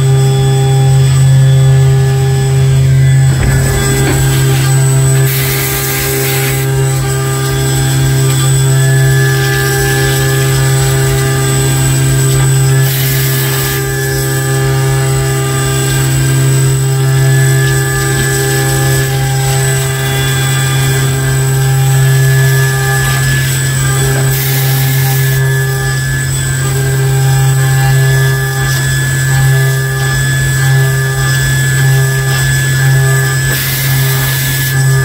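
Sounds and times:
machine hum: 0:00.0 - 0:35.0
mill cutting metal: 0:00.0 - 0:35.0
hissing bursts: 0:03.4 - 0:07.1.

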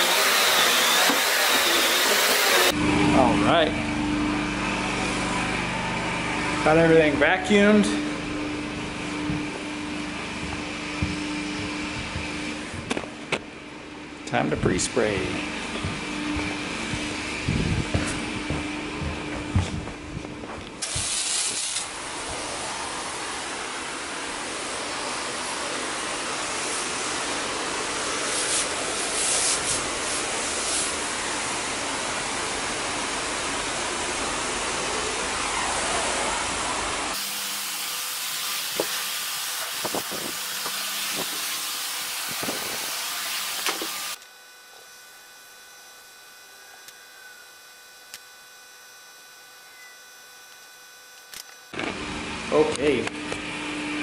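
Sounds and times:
pressurized spray hiss: 0:20.8 - 0:22.5.

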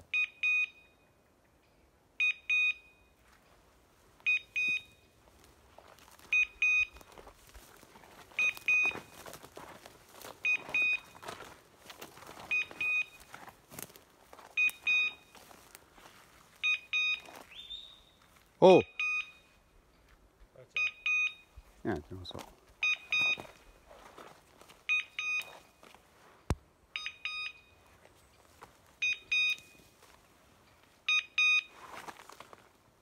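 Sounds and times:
electronic collar double beeps: 0:00.1 - 0:01.0, 0:02.2 - 0:03.1, 0:06.3 - 0:06.9, 0:14.6 - 0:15.3, 0:16.6 - 0:17.9, 0:18.8 - 0:19.5, 0:20.8 - 0:21.5, 0:22.8 - 0:23.6, 0:24.9 - 0:25.6, 0:27.0 - 0:27.8, 0:29.0 - 0:29.7, 0:31.1 - 0:31.7.

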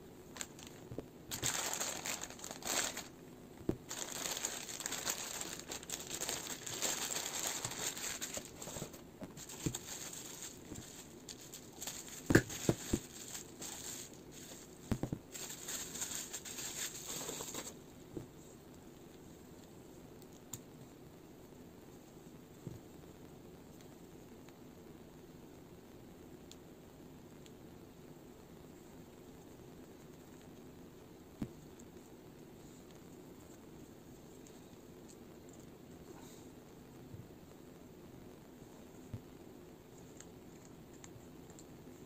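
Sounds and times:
plastic bags crinkling: 0:00.3 - 0:17.8.

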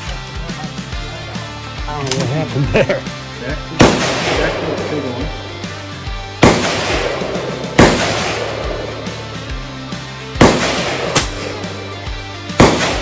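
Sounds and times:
background music: 0:00.0 - 0:13.0
rifle shots: 0:03.8 - 0:05.6, 0:06.4 - 0:13.0.

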